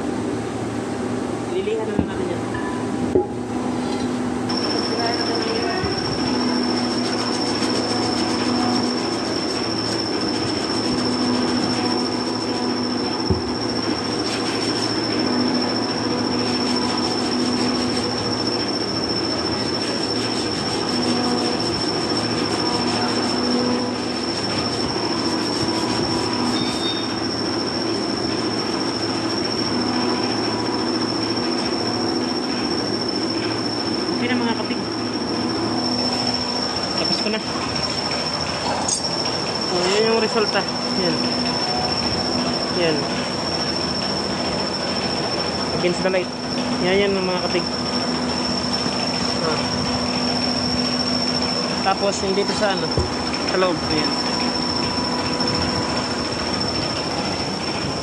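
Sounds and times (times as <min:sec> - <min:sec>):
shop machinery whine and hum: 0:00.0 - 0:58.0
hand sanding metal: 0:04.5 - 0:30.6.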